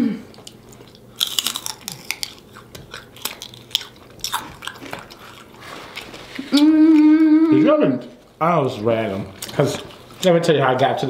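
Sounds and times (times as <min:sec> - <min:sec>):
person chewing crunchy food: 0:00.3 - 0:07.2, 0:09.1 - 0:10.3.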